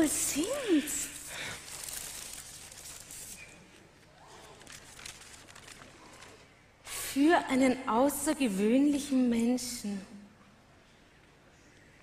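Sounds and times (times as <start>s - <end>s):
paper rustling and crinkling: 1.2s - 6.6s
card drawn from envelope: 1.6s - 3.7s.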